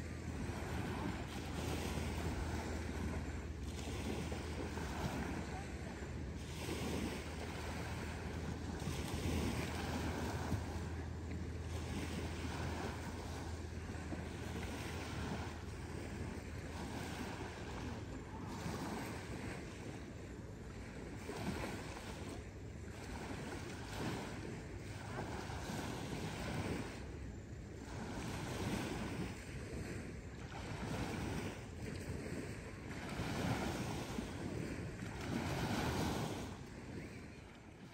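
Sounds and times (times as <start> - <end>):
small waves washing onto beach: 0.0 - 37.9.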